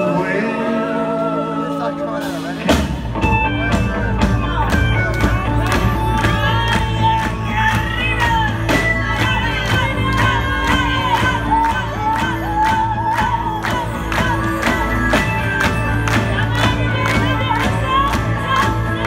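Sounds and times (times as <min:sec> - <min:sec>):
voices singing: 0:00.0 - 0:02.8
live rock band playing: 0:00.0 - 0:19.0.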